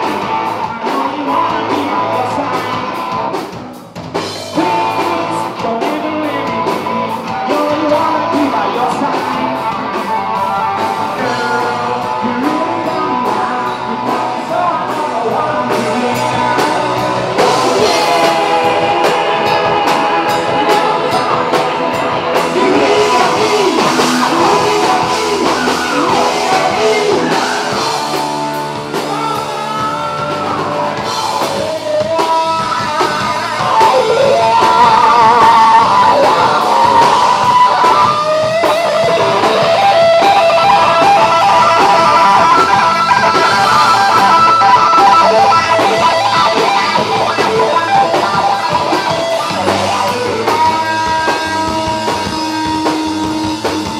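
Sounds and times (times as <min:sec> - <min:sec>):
bass guitar: 0:00.0 - 0:53.9
drums: 0:00.0 - 0:53.9
electric guitar lead: 0:00.0 - 0:53.9.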